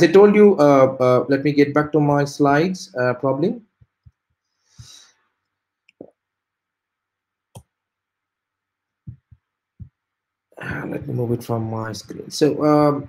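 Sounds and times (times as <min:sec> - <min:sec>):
computer clicks and taps: 0:03.7 - 0:04.9, 0:05.9 - 0:06.2, 0:07.5 - 0:07.8, 0:09.1 - 0:10.0.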